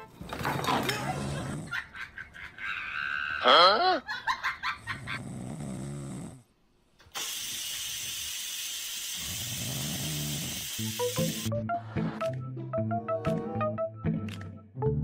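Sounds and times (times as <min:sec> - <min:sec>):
kitten snoring: 0:05.2 - 0:06.5, 0:09.2 - 0:10.7.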